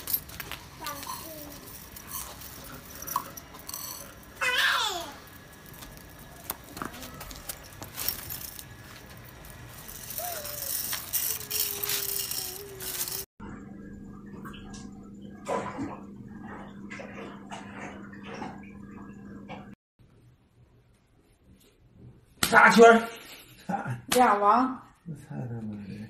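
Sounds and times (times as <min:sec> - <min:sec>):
toy wheels rattling over concrete: 0:00.0 - 0:13.3
steady low hum: 0:05.0 - 0:20.3.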